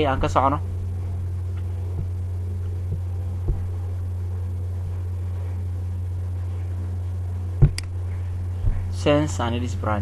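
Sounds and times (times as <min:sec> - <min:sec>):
low hum: 0:00.0 - 0:10.0
soft low thump: 0:01.9 - 0:04.0, 0:07.6 - 0:09.0.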